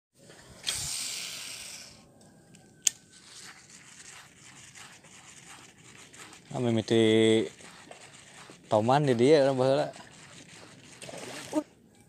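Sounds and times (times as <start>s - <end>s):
fishing line hissing out: 0.6s - 2.0s.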